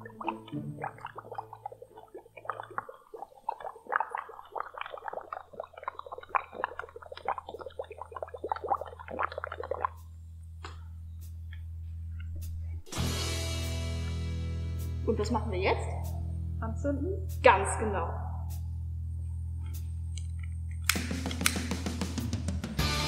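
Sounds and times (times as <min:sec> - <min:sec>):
gas bubbling through soap solution: 0:00.0 - 0:10.2
low steady hum: 0:00.0 - 0:12.9.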